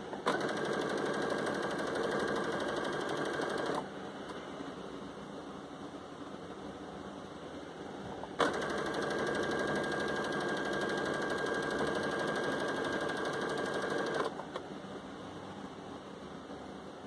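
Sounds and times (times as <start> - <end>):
sewing machine stitching: 0.2 - 3.8, 8.4 - 14.4.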